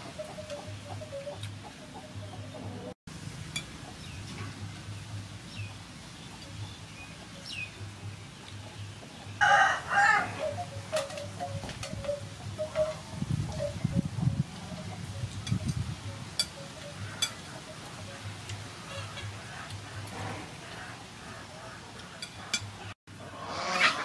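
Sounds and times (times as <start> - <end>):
rooster crowing: 9.4 - 10.6.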